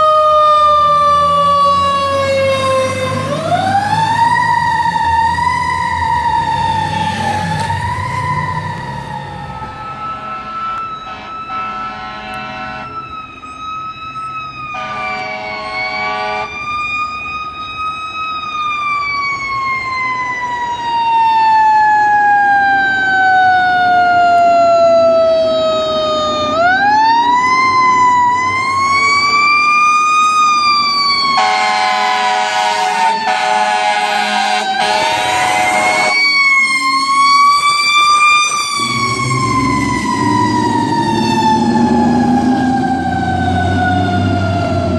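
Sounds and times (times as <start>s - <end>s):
truck engine: 0.0s - 19.5s, 22.2s - 44.9s
siren wailing: 0.0s - 44.9s
air horn blasts: 10.0s - 13.0s, 14.7s - 16.5s, 31.4s - 36.3s.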